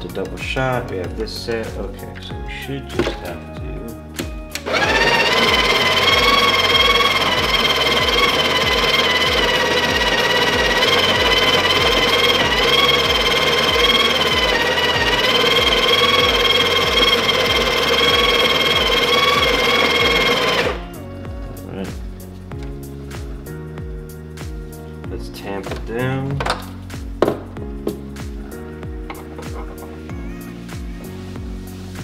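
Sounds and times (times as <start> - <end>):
coffee grinder grinding beans: 4.6 - 20.9.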